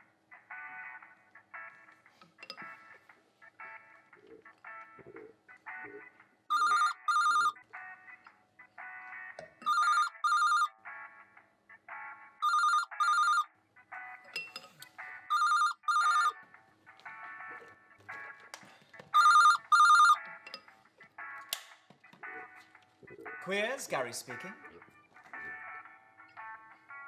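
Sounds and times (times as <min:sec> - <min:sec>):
quiet background music: 0:00.0 - 0:27.0
telephone ringing: 0:05.7 - 0:08.2, 0:09.5 - 0:11.0, 0:12.4 - 0:13.5, 0:15.0 - 0:16.4, 0:19.1 - 0:20.4.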